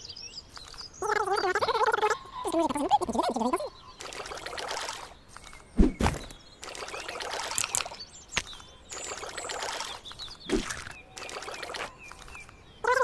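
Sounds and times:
water splashing and trickling: 3.1 - 13.0.

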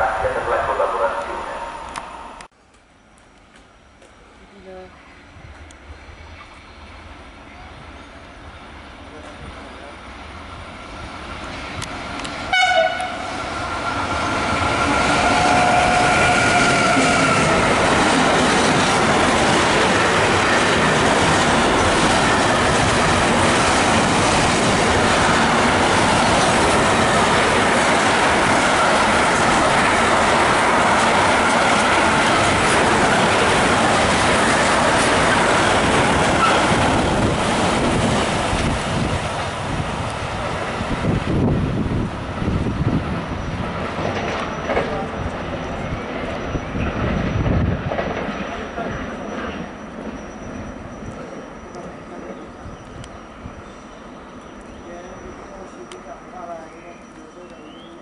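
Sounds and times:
freight train rumble and wheel clatter: 3.5 - 57.8
locomotive horn: 12.5 - 13.4, 15.2 - 17.6.

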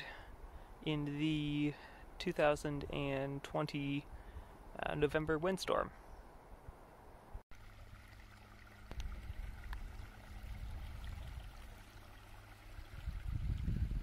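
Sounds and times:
creek trickling: 7.5 - 14.0
wind rumbling on microphone: 8.8 - 14.0.

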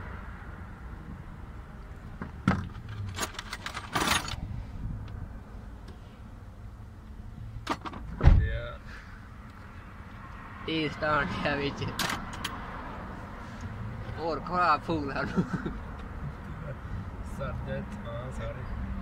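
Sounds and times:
dull thump: 7.9 - 8.6.

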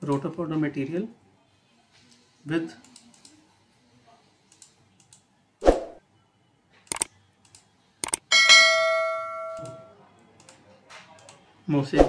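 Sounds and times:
sharp clicks: 6.9 - 8.3
bell chime: 8.3 - 9.9.

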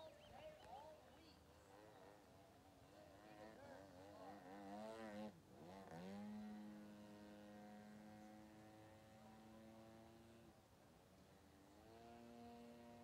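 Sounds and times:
model plane engine: 3.0 - 10.6.

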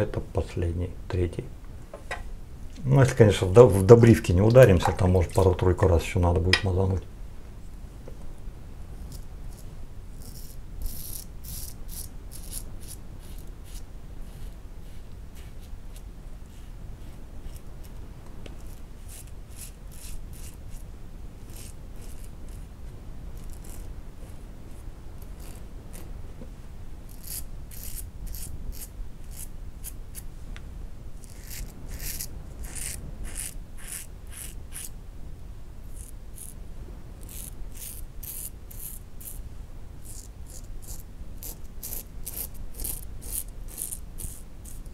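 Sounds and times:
razor scraping stubble: 9.0 - 18.0, 18.6 - 20.8, 21.4 - 22.7, 23.4 - 26.1, 27.1 - 30.3, 31.2 - 35.0, 35.8 - 36.6, 37.2 - 39.4, 40.0 - 44.9
shaving brush working lather: 9.1 - 17.7, 18.6 - 20.8, 21.4 - 22.7, 27.1 - 30.2, 31.2 - 35.0, 35.9 - 36.6, 37.2 - 39.4, 40.0 - 44.9.

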